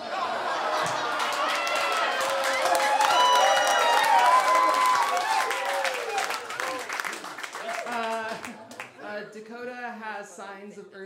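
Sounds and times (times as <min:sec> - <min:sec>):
audience laughing: 0:00.0 - 0:01.9
voices cheering and hollering: 0:00.0 - 0:08.0
audience applauding: 0:00.6 - 0:09.0.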